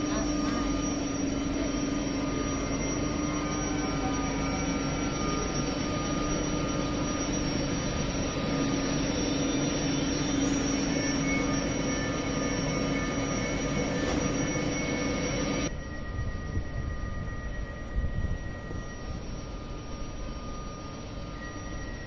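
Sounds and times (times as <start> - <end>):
high-pitched tones from train: 0.0 - 22.0
steady hum: 0.0 - 22.0.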